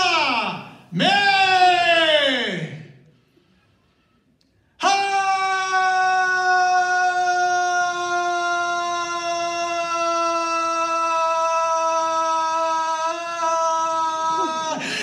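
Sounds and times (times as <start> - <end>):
man screaming into microphone: 4.8 - 15.0.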